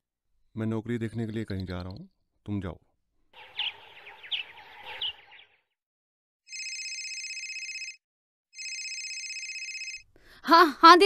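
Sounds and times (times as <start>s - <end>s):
birds chirping: 3.4s - 5.8s
telephone electronic ring: 6.5s - 10.1s.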